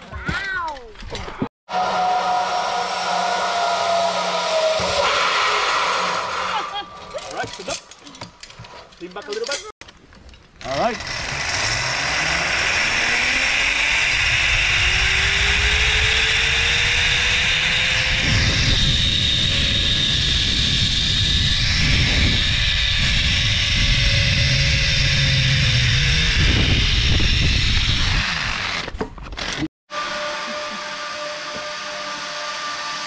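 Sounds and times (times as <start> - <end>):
zipline pulleys whirring on cable: 1.7 - 8.8, 10.6 - 33.0
wind rushing over microphone: 13.2 - 28.8.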